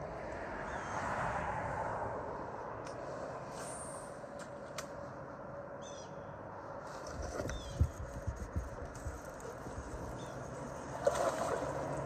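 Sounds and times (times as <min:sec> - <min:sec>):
bird chirps: 0:05.8 - 0:06.3, 0:10.1 - 0:10.4
water sloshing and trickling: 0:06.8 - 0:12.0.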